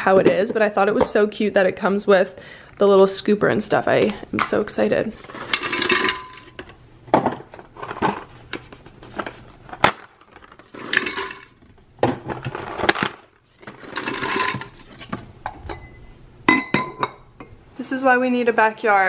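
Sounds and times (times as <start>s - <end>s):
metal capsules clinking into glass jar: 10.8s - 11.6s.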